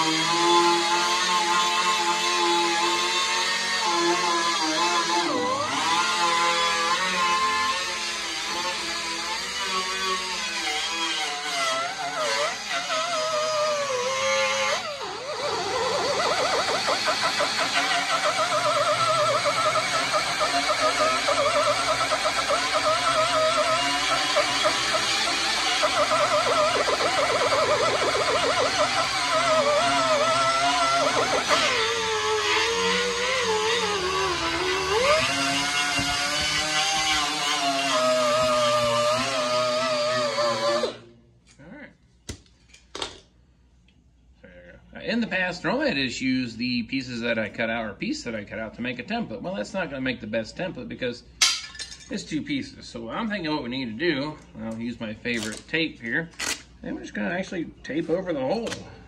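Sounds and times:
air die grinder whining on steel: 0.0s - 41.0s.

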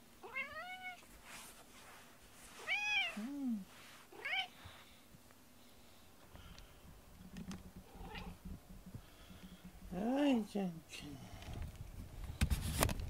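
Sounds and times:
cat meowing: 0.2s - 1.0s.

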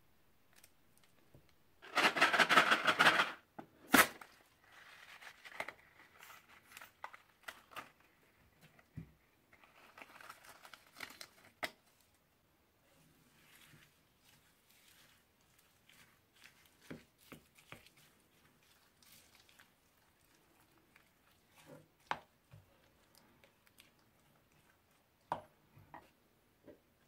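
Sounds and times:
crunchy slime crackling: 13.4s - 25.0s.

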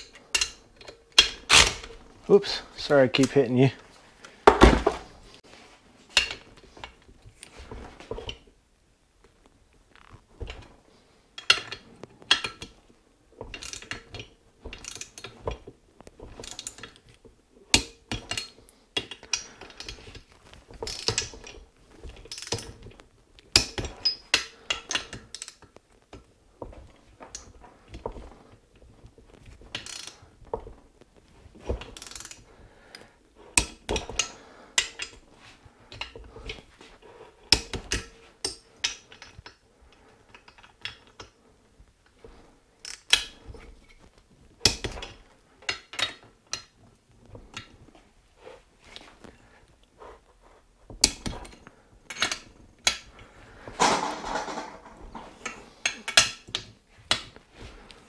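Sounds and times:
ratchet wrench clicking: 29.8s - 30.2s, 32.0s - 32.4s.

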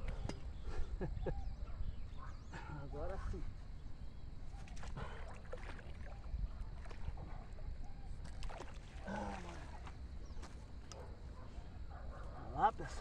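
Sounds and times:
water splashing and sloshing: 4.4s - 11.0s.

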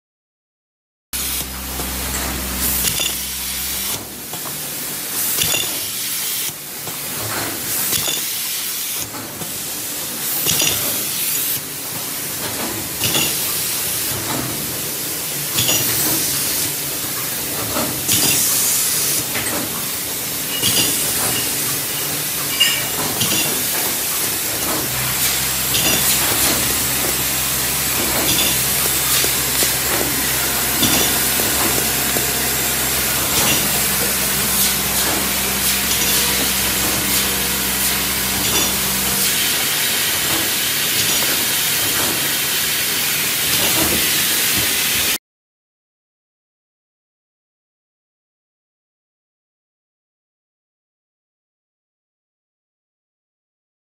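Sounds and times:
low hum: 1.2s - 5.4s, 21.1s - 40.6s
carton folding machine running: 1.2s - 6.0s, 15.9s - 45.0s.

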